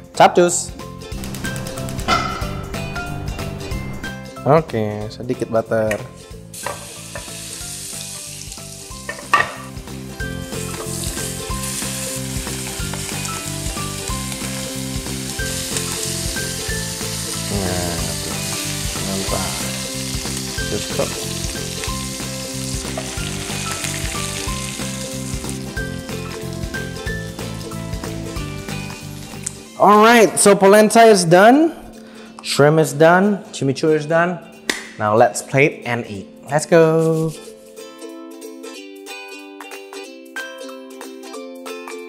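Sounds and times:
sharp knock: 1.9s - 2.8s
shrimp sizzling in a frying pan: 6.5s - 29.6s.

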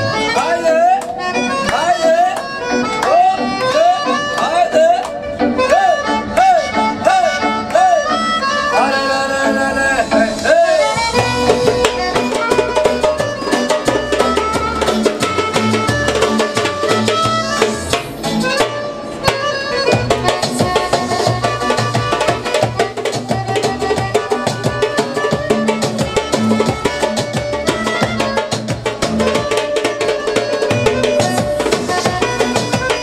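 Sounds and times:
backing track from speaker: 0.0s - 33.0s
wavering lead melody: 0.0s - 33.0s
heavy bass beat: 10.2s - 29.6s
hand drum: 11.0s - 33.0s.

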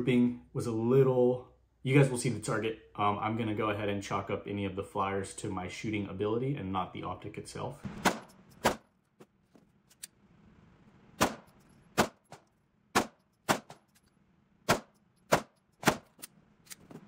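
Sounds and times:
pistol shots cracking: 11.2s - 12.4s.

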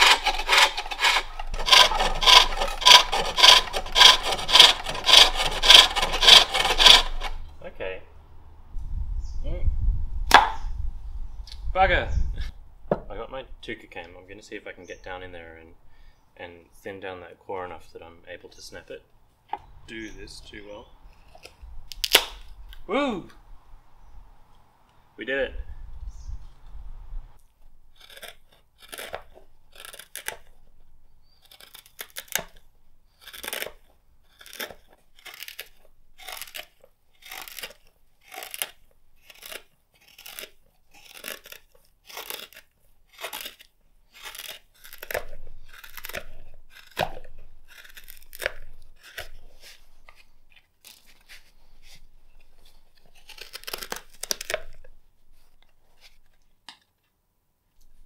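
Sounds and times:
knife slicing wood: 0.0s - 7.4s, 27.9s - 56.4s.

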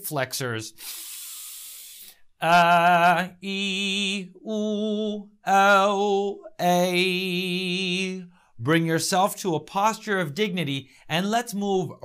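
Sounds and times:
man singing long vowel tones: 2.4s - 8.3s.

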